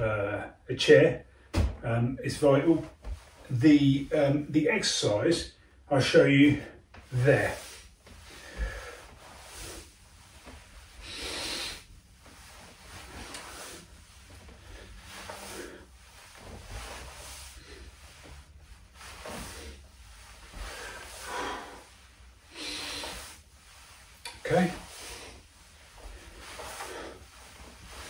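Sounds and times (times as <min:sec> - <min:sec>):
man breathing in and out: 0:06.6 - 0:28.0.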